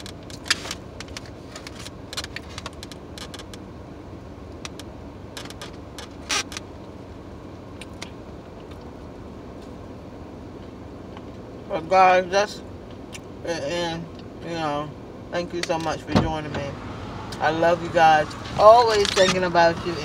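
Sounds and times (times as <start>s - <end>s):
clicks and rustles of handling: 0.0s - 3.6s, 4.6s - 6.7s
car cabin hum: 0.0s - 20.0s.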